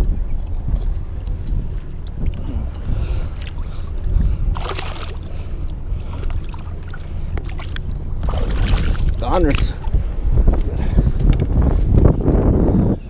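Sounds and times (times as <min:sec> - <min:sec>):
water sloshing: 0:00.0 - 0:11.3
wind on microphone: 0:00.0 - 0:13.0
water splash: 0:03.3 - 0:10.0.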